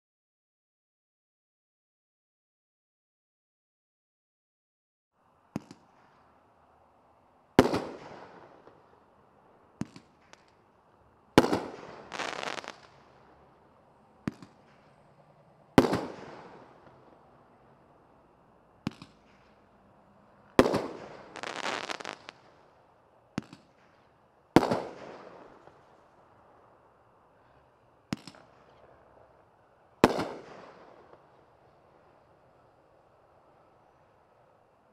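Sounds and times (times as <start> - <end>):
firework launch pops: 5.5 - 6.2, 7.6 - 8.8, 9.8 - 10.6, 11.4 - 13.1, 14.2 - 15.0, 15.8 - 17.0, 18.8 - 19.6, 20.6 - 22.6, 23.3 - 25.8, 28.1 - 28.8, 30.0 - 31.3
dense firework crackling: 7.6 - 9.1, 9.8 - 17.6, 18.8 - 26.2, 28.1 - 33.0.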